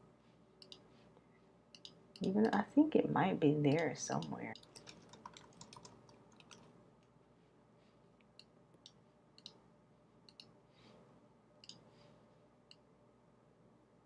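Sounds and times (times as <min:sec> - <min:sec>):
computer mouse clicks: 0:00.6 - 0:00.8, 0:01.7 - 0:02.6, 0:03.7 - 0:06.7, 0:08.4 - 0:09.6, 0:10.3 - 0:10.5, 0:11.6 - 0:11.8.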